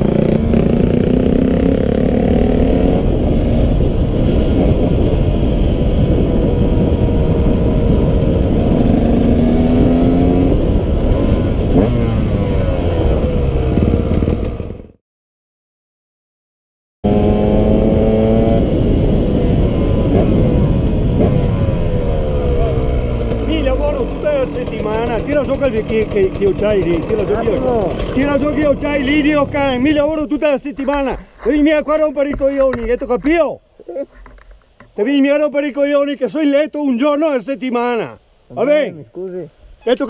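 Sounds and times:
dirt bike engine revving: 0:00.0 - 0:15.0, 0:17.0 - 0:30.2
wind rumble on microphone: 0:00.0 - 0:15.0, 0:17.1 - 0:25.5.

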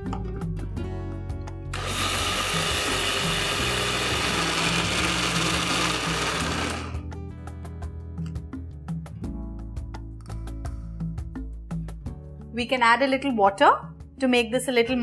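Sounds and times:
mixer grinder running: 0:01.8 - 0:07.0.

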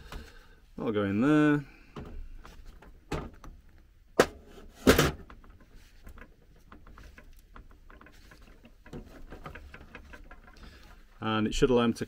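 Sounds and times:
metal tube knocking and scraping: 0:02.0 - 0:11.2.

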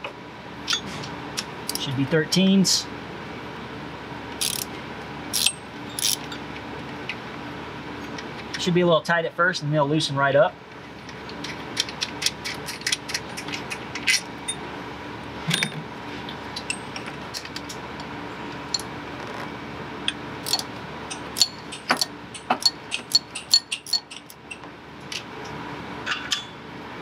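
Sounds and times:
wrench clicking on bolts: 0:04.4 - 0:04.7, 0:05.4 - 0:06.2, 0:20.1 - 0:24.6.

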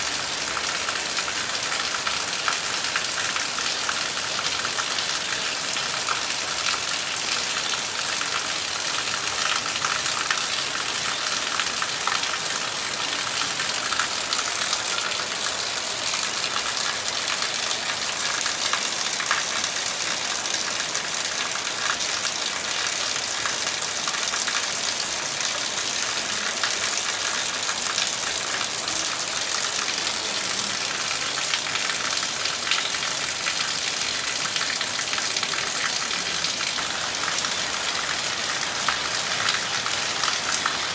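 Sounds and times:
heavy rain falling: 0:00.0 - 0:40.9.

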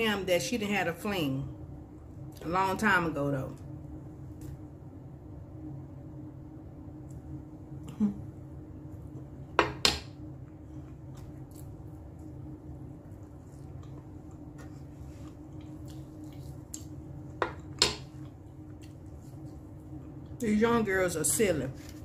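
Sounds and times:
steady low hum: 0:00.0 - 0:22.0
chewing and mouth sounds: 0:10.5 - 0:12.4, 0:13.0 - 0:20.4.

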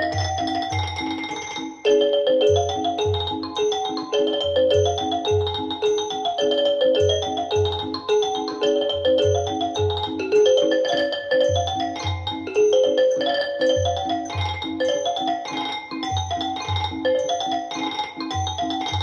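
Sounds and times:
pulsing bass beat: 0:00.0 - 0:01.3
mallet percussion melody: 0:00.0 - 0:19.0.

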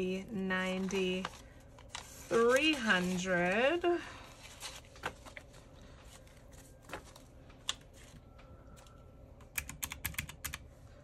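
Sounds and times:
calculator keys clicking: 0:09.5 - 0:10.6.

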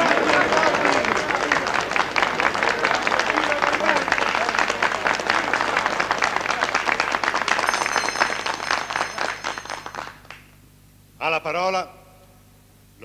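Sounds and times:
voices: 0:00.0 - 0:09.3
crowd applauding: 0:00.0 - 0:10.5.

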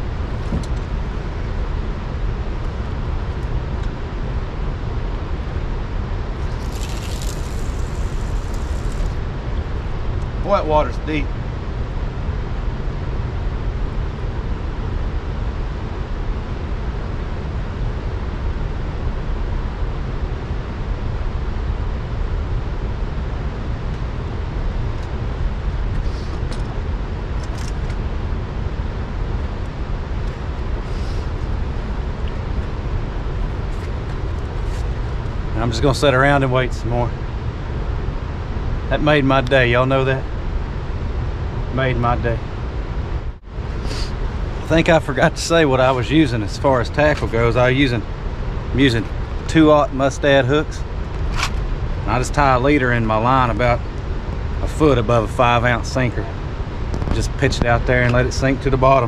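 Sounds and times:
fishing line running off reel: 0:06.4 - 0:09.2.

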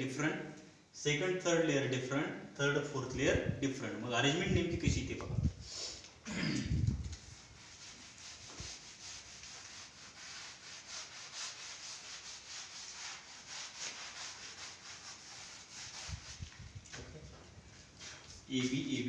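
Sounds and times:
duster rubbing a blackboard: 0:07.0 - 0:16.8.

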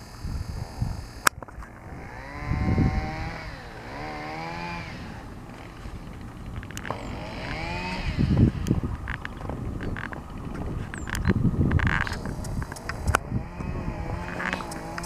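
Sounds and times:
small engine revving: 0:00.0 - 0:15.0
sharp click: 0:11.0 - 0:13.2, 0:14.3 - 0:15.0.

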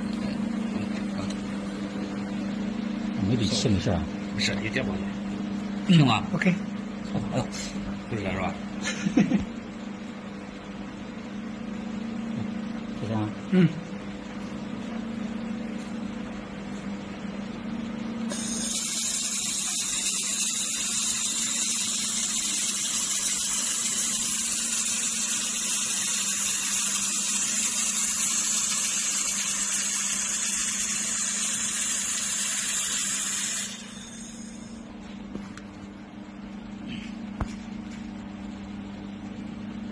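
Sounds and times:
laser welder hissing: 0:18.3 - 0:34.8.

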